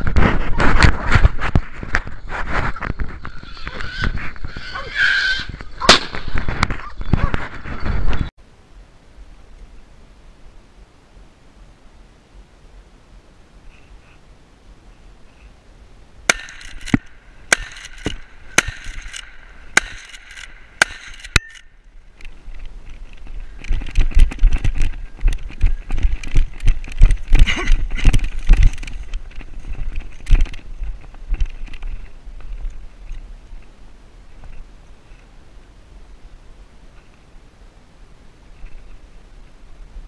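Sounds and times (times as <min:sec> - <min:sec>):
sharp ringing clicks: 0:16.3 - 0:21.7.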